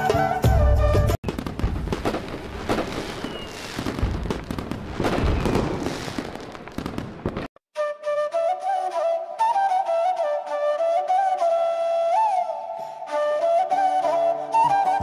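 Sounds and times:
fireworks bangs: 1.2s - 7.6s
fireworks crackling: 1.2s - 7.6s
faint falling whistle: 3.2s - 3.6s.

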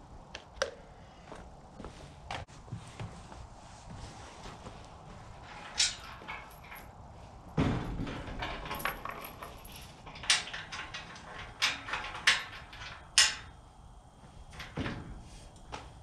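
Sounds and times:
chain rattling and clinking: 5.4s - 13.6s
metal gate clanking shut: 5.4s - 13.6s, 14.5s - 15.4s.

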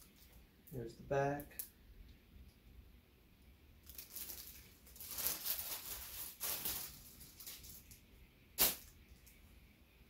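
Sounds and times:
plastic packaging rustling: 3.8s - 9.4s
cotton shirt rustling: 3.9s - 8.0s.

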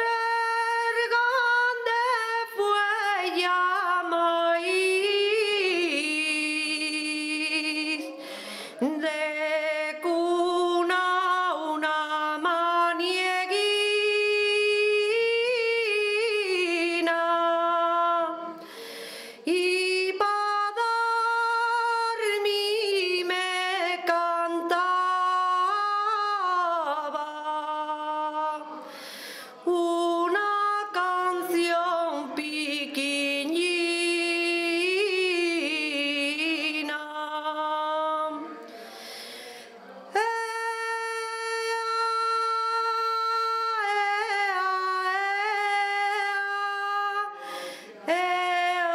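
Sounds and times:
solo person singing: 0.0s - 48.9s.

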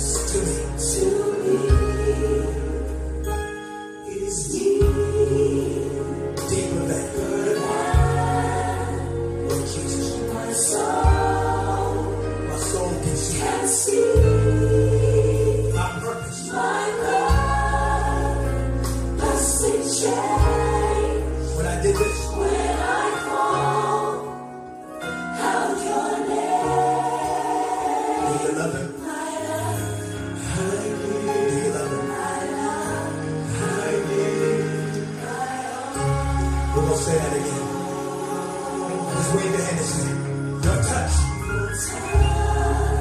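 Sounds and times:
choir singing gospel: 0.0s - 43.0s.

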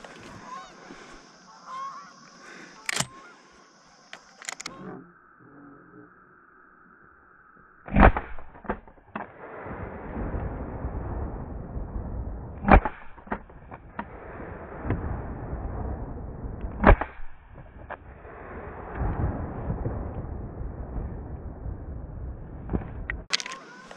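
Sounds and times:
sharp cracks: 2.2s - 4.7s, 7.8s - 9.7s, 12.5s - 15.0s, 16.6s - 18.2s.

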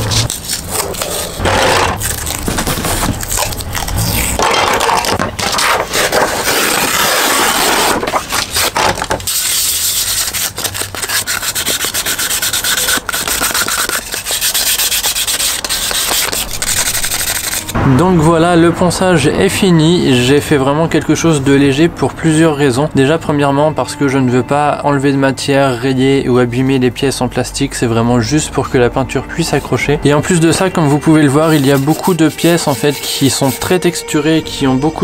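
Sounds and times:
sandpaper rubbing hard plastic: 0.0s - 17.7s, 30.3s - 34.0s.

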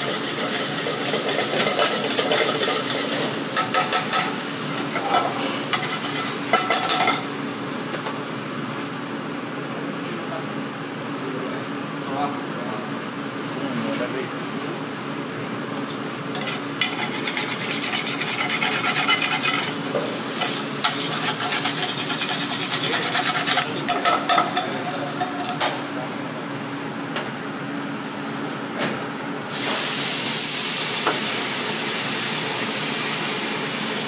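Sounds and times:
utensil scraping a pan: 0.0s - 7.2s, 16.4s - 25.7s
food frying in a pan: 0.0s - 9.7s, 14.8s - 28.4s, 29.5s - 34.0s.

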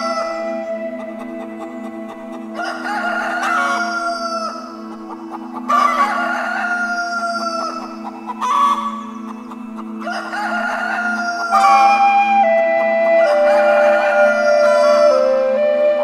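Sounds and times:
soft background music: 0.0s - 16.0s
rooster crowing: 2.6s - 4.6s, 5.7s - 9.0s, 10.0s - 12.0s, 13.2s - 15.2s.

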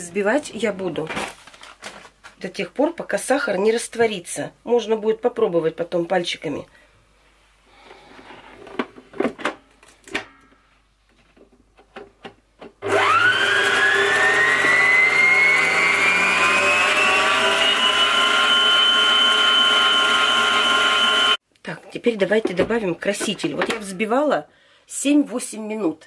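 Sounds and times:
stand mixer motor whining: 12.8s - 21.4s.

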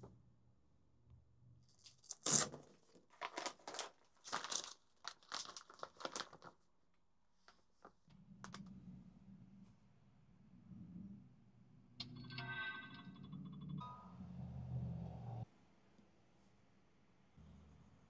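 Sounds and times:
plastic bag crinkling: 1.9s - 6.6s.

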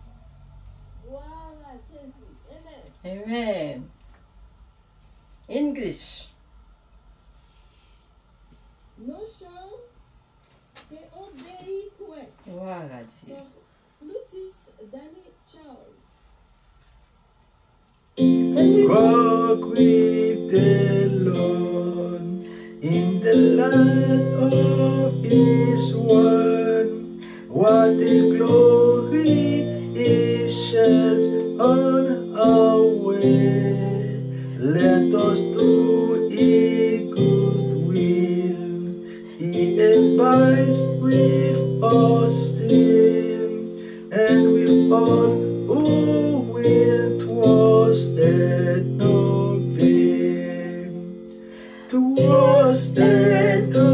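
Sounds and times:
acoustic guitar hymn: 18.2s - 53.9s.

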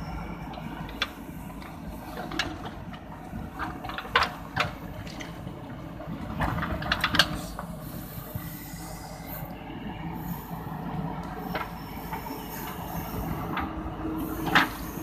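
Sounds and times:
diesel engine running: 0.0s - 15.0s
digger bucket knocking and scraping: 6.2s - 7.7s.

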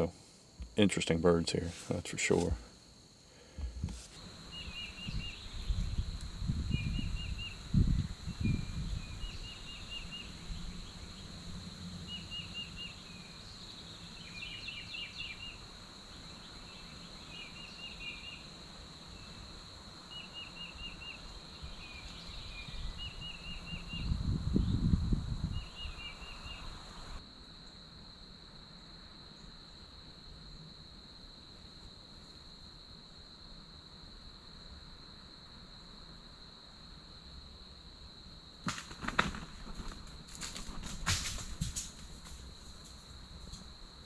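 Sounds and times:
insect drone: 0.0s - 44.0s
songbird singing: 3.6s - 27.2s.

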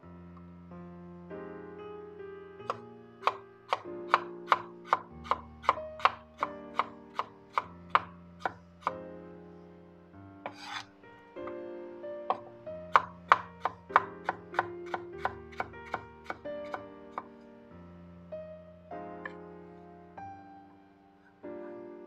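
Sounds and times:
knife scraping board: 10.4s - 10.9s
knife slicing on wooden board: 10.4s - 10.9s.

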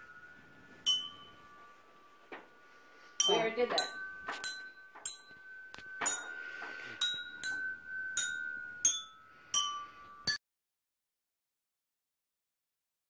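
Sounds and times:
hand-held metal chimes ringing: 0.0s - 10.4s.

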